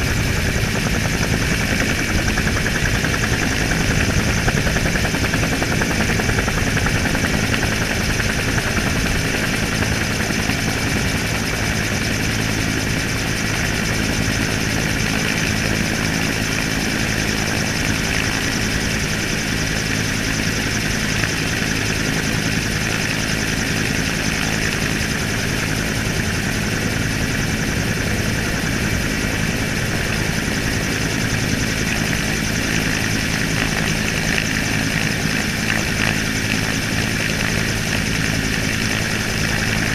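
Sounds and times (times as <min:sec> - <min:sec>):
helicopter rotor and engine: 0:00.0 - 0:39.9.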